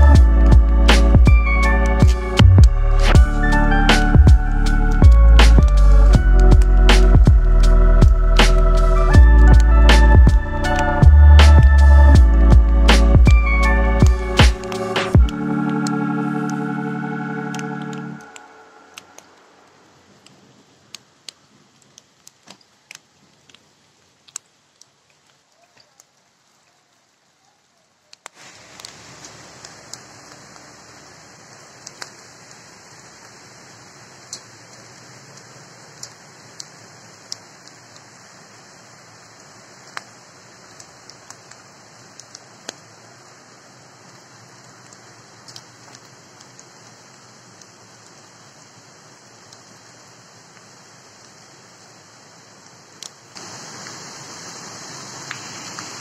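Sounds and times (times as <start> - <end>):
raindrops ticking: 0.0 - 27.3, 28.0 - 56.0
faint steady hiss: 0.0 - 56.0
river rushing over stones: 28.3 - 42.8, 50.2 - 56.0.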